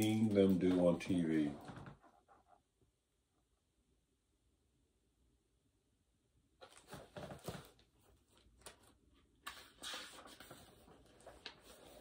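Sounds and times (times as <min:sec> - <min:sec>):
book page turning: 0:06.6 - 0:12.0.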